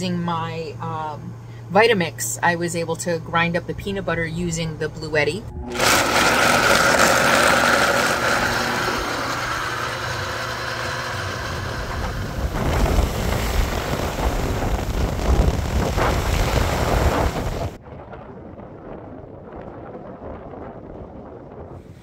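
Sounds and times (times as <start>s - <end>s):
blender motor whine: 5.5s - 15.2s
wind buffeting microphone: 6.3s - 22.0s.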